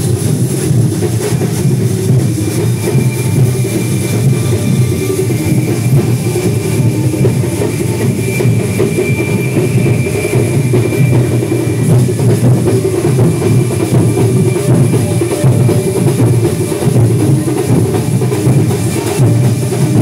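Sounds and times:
loud continuous drumming: 0:00.0 - 0:20.0
thin steady high tone: 0:00.0 - 0:20.0.

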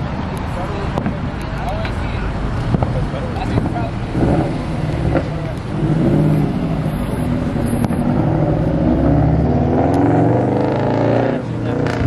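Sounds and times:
car engine and exhaust revving: 0:00.0 - 0:12.0.

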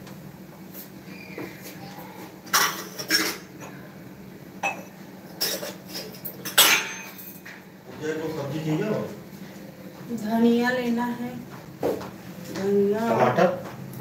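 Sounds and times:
steel pots and utensils clanking: 0:02.5 - 0:03.5, 0:05.4 - 0:07.5.

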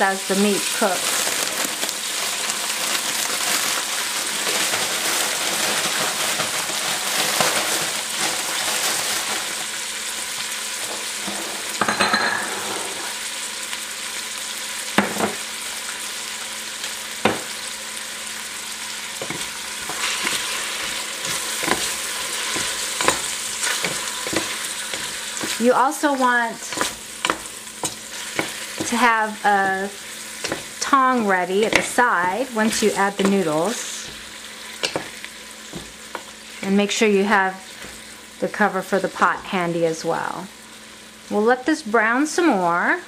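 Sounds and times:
meat and onions sizzling in oil: 0:00.0 - 0:43.0
wooden spatula knocking and scraping pot: 0:19.2 - 0:36.3.

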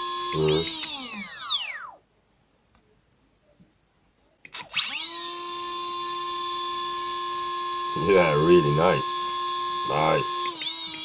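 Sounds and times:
electric motor whine: 0:00.0 - 0:01.6, 0:04.8 - 0:11.0.

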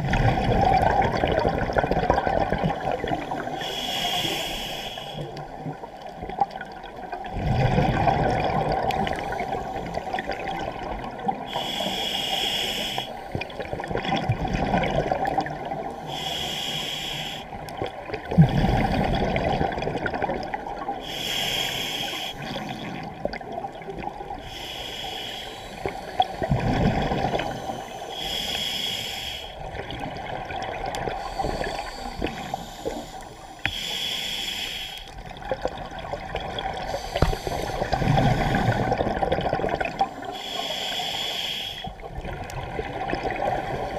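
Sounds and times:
low underwater rumbling: 0:00.0 - 0:03.5, 0:05.4 - 0:11.5, 0:17.6 - 0:21.0, 0:25.6 - 0:28.1, 0:35.1 - 0:40.2
scuba regulator breathing hiss: 0:03.1 - 0:05.4, 0:11.4 - 0:13.4, 0:15.9 - 0:17.6, 0:21.0 - 0:23.0, 0:24.3 - 0:26.6, 0:27.3 - 0:29.7, 0:31.2 - 0:35.2, 0:36.8 - 0:39.0, 0:40.0 - 0:42.0.

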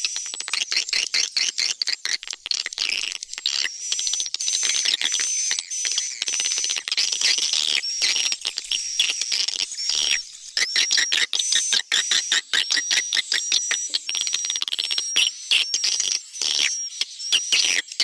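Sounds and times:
rapid high bird chirps and twitters: 0:00.0 - 0:18.0.

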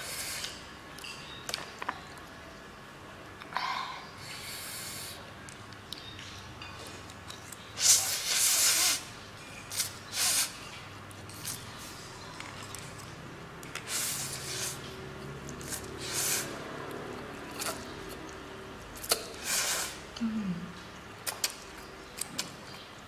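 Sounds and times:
mouth clicks: 0:21.2 - 0:21.6.

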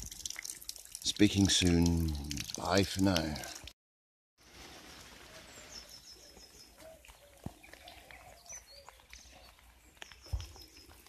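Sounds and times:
faint outdoor garden ambience: 0:00.0 - 0:03.7, 0:04.4 - 0:11.0
small bird chirping: 0:05.3 - 0:11.0.

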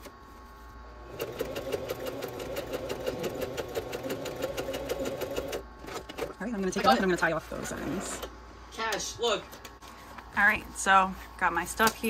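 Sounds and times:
sewing machine stitching: 0:01.1 - 0:06.1.

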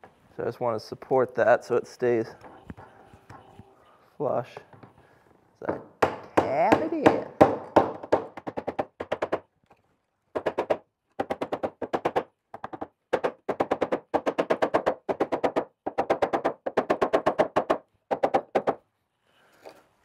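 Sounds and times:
hammer tapping wooden wedges: 0:05.6 - 0:09.5.

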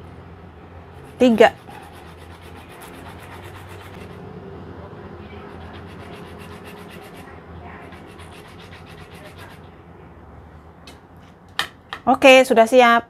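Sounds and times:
fruit scraping on grater: 0:01.1 - 0:04.2, 0:05.4 - 0:09.6.

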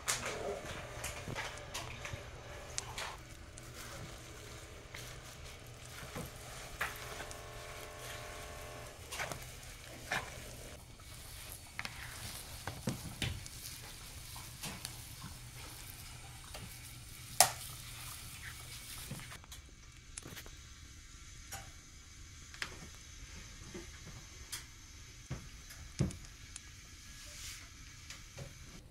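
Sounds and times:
wet squelching of meat mixing: 0:00.0 - 0:19.4.

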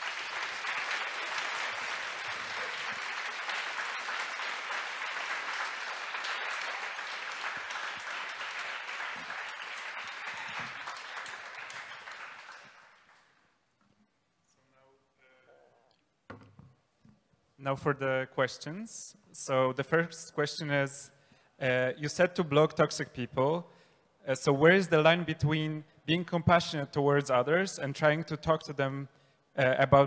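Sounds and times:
audience applauding in a hall: 0:00.0 - 0:13.6.

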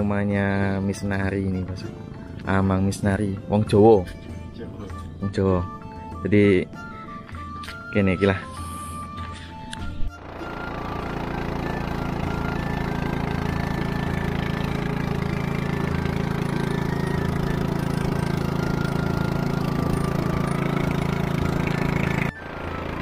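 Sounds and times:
motorboat engine droning: 0:10.1 - 0:23.0.

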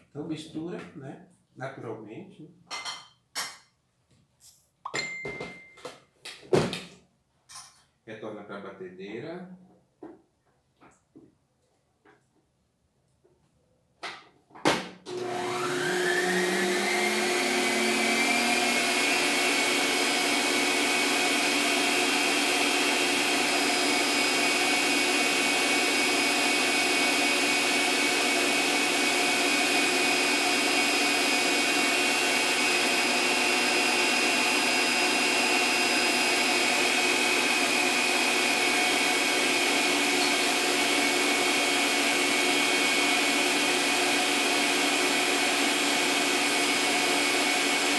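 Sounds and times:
stand mixer motor whine: 0:15.1 - 0:47.9.

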